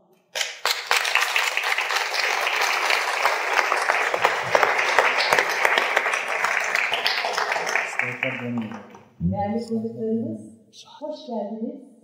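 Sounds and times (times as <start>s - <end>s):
audience applauding: 0.4s - 9.0s.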